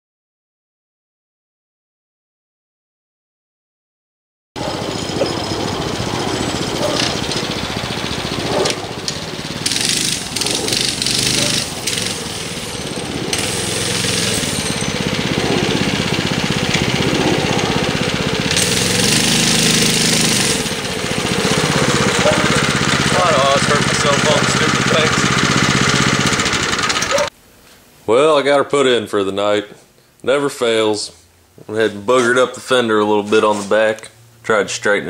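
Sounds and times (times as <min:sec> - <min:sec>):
mini bike engine chugging: 0:04.6 - 0:27.3.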